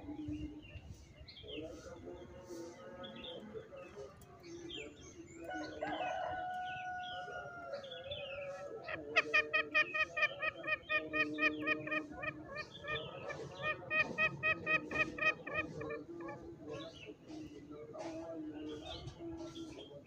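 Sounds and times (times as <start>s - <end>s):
junglefowl calling: 5.5s - 20.0s
higher bird chirps: 7.8s - 20.0s
repeated clucking notes: 8.8s - 19.8s.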